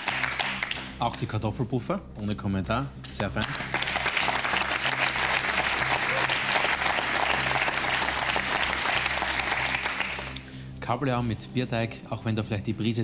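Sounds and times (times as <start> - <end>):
group of people clapping: 0.0 - 1.3, 3.1 - 10.5.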